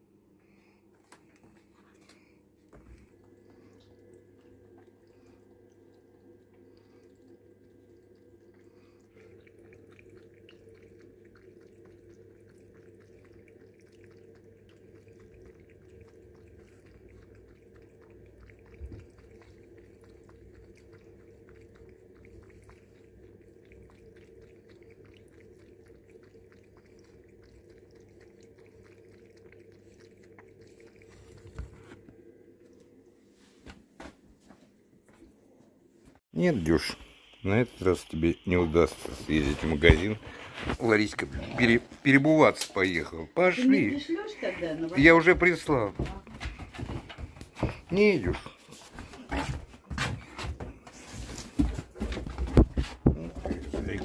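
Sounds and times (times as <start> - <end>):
cat lapping water: 0.0 - 33.6, 36.3 - 54.0
low hum: 0.0 - 33.6.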